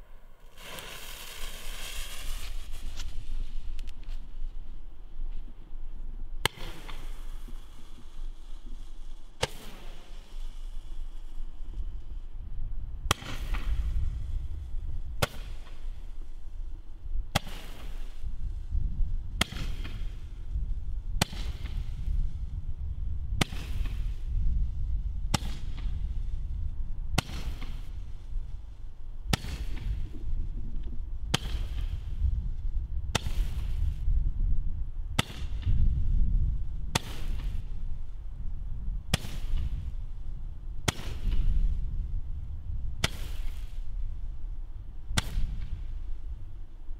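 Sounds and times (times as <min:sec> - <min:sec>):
firework shots popping and hissing: 0:00.0 - 0:05.5, 0:06.4 - 0:12.3, 0:13.0 - 0:34.4, 0:35.1 - 0:46.5
steady low rumble: 0:18.2 - 0:46.9.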